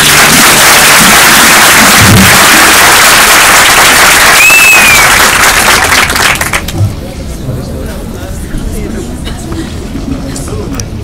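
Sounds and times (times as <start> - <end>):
high falling whistle: 0.0 - 5.5
audience applauding: 0.0 - 6.8.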